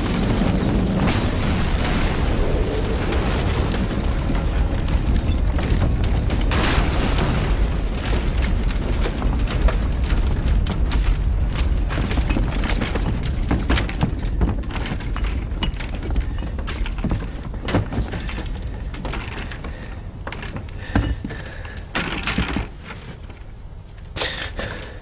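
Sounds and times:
deep explosion rumble: 0:00.0 - 0:12.6
debris crashing and clattering: 0:00.0 - 0:23.4.

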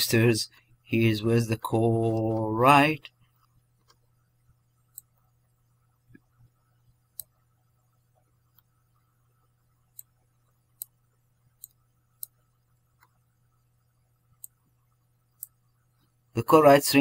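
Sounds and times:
faint low hum: 0:00.0 - 0:17.0
computer mouse clicking: 0:04.8 - 0:05.1, 0:07.0 - 0:07.4, 0:09.9 - 0:11.0, 0:11.6 - 0:12.4, 0:13.0 - 0:13.2, 0:14.3 - 0:14.6, 0:15.3 - 0:16.1.

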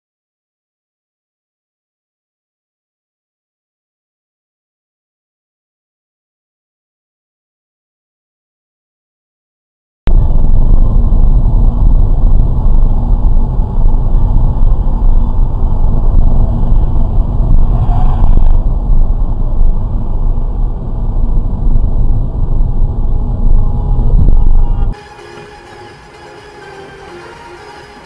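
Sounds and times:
car engine and road noise: 0:10.1 - 0:28.0.

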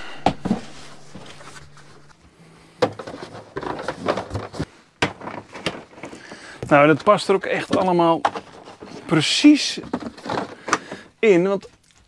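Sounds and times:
faint low hum: 0:00.0 - 0:04.8.

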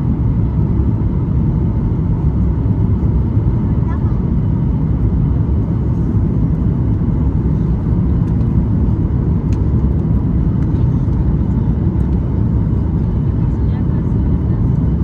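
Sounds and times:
airplane cabin rumble: 0:00.0 - 0:15.0.

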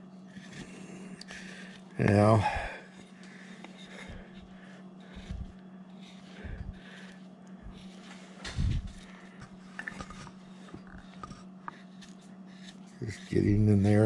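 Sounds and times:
steady low hum: 0:00.0 - 0:14.0
gouge scraping wood: 0:00.3 - 0:14.0.

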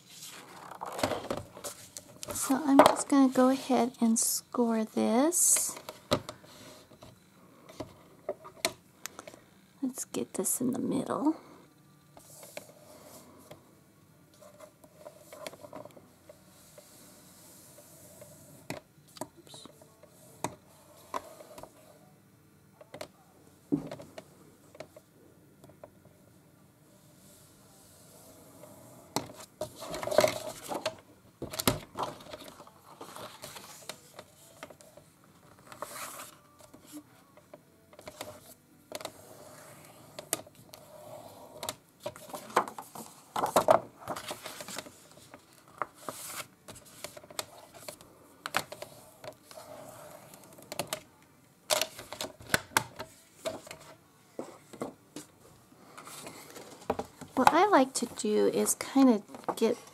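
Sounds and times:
paper rustling as folded: 0:31.9 - 0:34.8, 0:35.4 - 0:37.0, 0:41.6 - 0:48.0.

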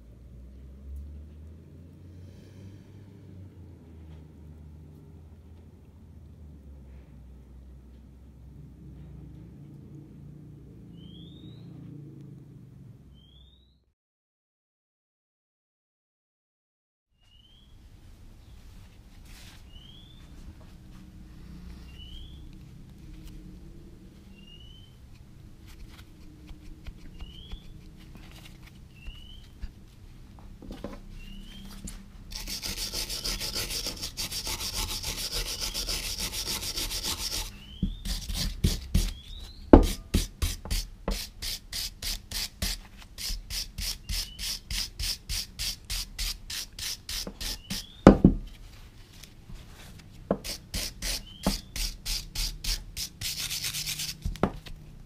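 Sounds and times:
brush scrubbing metal: 0:32.3 - 0:39.2, 0:39.8 - 0:47.9, 0:50.4 - 0:54.2.

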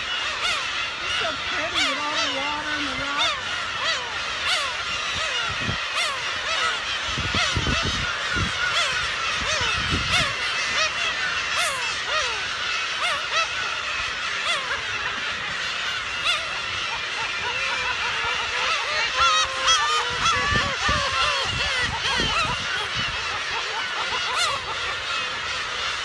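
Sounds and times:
gulls calling: 0:00.0 - 0:26.0.

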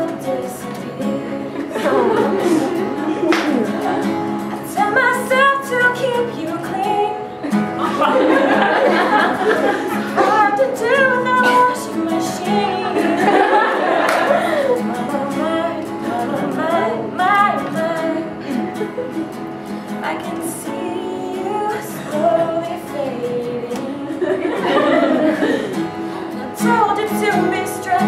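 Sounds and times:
woman singing: 0:00.0 - 0:08.1, 0:10.1 - 0:25.0, 0:25.7 - 0:28.0
acoustic guitar: 0:00.0 - 0:28.0.

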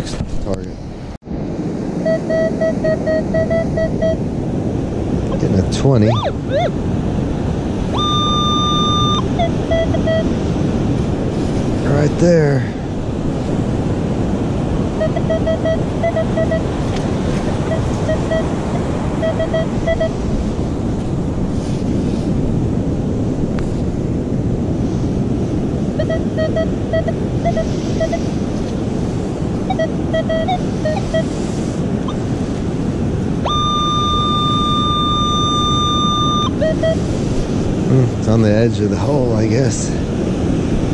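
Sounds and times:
surf roaring: 0:00.0 - 0:40.9
wind roaring: 0:00.0 - 0:40.9
metal detector low beeps: 0:02.0 - 0:04.2, 0:05.3 - 0:06.8, 0:07.9 - 0:10.4, 0:15.0 - 0:16.8, 0:17.5 - 0:20.2, 0:26.0 - 0:28.3, 0:29.6 - 0:31.4, 0:33.4 - 0:37.2
steady high tone: 0:02.0 - 0:04.2, 0:05.3 - 0:06.9, 0:07.9 - 0:10.3, 0:15.0 - 0:16.7, 0:17.5 - 0:20.1, 0:26.0 - 0:28.2, 0:33.4 - 0:37.0.

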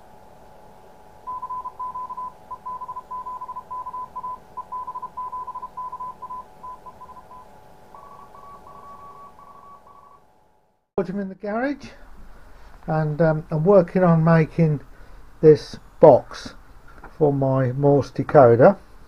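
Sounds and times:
faint steady tones: 0:00.0 - 0:10.8
fainter higher morse signal: 0:01.3 - 0:10.3
morse code tone: 0:01.3 - 0:10.3.

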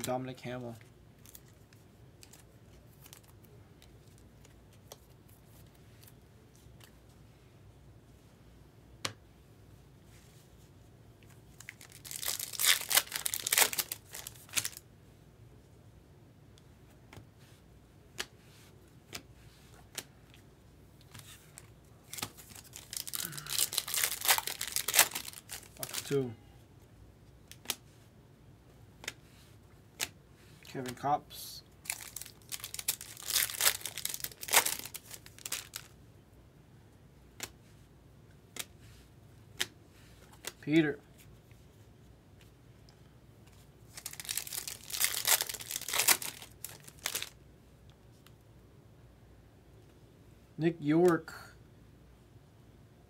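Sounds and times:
card wrappers tearing and crinkling: 0:11.6 - 0:14.8, 0:21.1 - 0:26.2, 0:31.8 - 0:36.0, 0:43.9 - 0:47.4.

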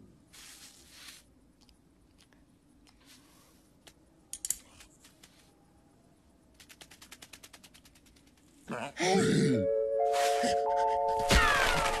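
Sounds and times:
faint sandy hiss: 0:00.0 - 0:05.8.

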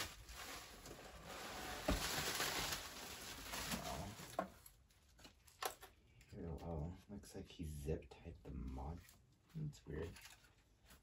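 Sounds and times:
bubble wrap and foam rustling: 0:00.0 - 0:05.6.

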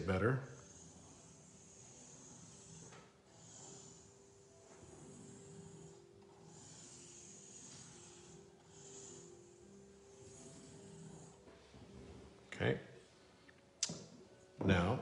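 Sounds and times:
pencil scratching on paper: 0:00.0 - 0:11.5.

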